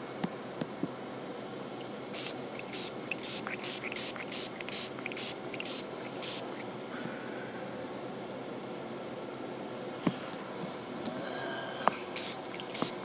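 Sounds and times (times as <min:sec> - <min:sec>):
spray bottle hissing sprays: 0:02.2 - 0:06.6, 0:12.2 - 0:13.0.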